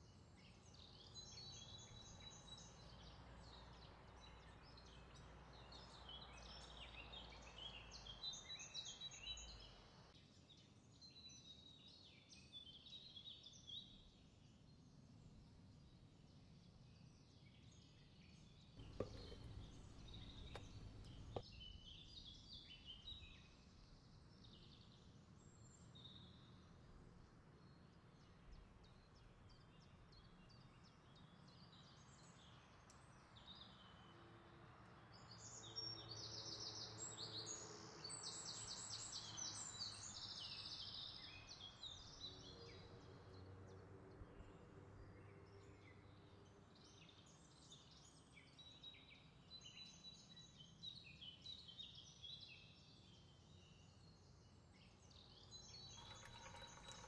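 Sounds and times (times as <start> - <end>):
birds chirping and trilling: 18.8 - 21.4
faint steady hum: 18.8 - 21.4.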